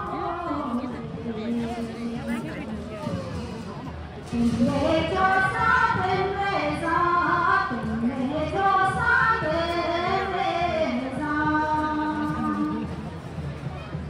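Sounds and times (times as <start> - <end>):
women singing together: 4.4 - 12.8.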